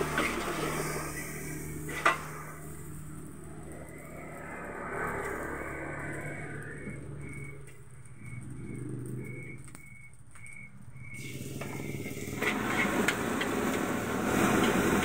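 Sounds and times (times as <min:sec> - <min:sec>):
metal spatula scraping a wok: 0:00.0 - 0:02.6
rice sizzling in a wok: 0:00.0 - 0:07.1, 0:10.9 - 0:15.0
gas burner humming: 0:00.0 - 0:15.0.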